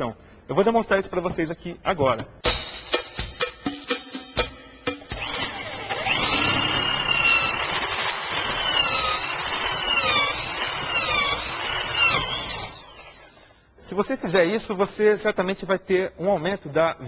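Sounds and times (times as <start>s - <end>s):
electric drill boring into wood: 5.1s - 13.4s.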